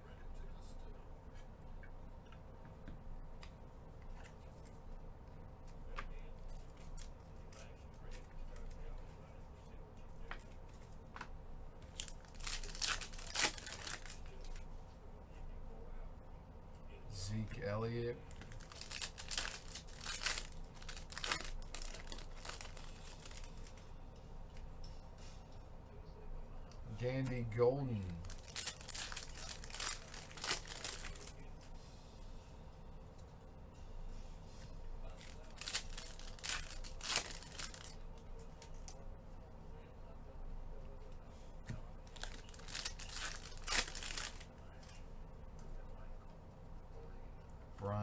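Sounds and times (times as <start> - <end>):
low steady hum: 0.0 - 48.0
foil packs rustling: 12.0 - 14.3, 18.4 - 23.7, 28.2 - 31.4, 35.2 - 37.9, 42.1 - 44.4.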